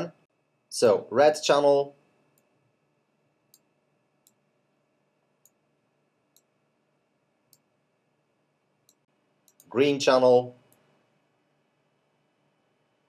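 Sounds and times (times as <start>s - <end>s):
faint computer mouse clicks: 8.8s - 9.7s.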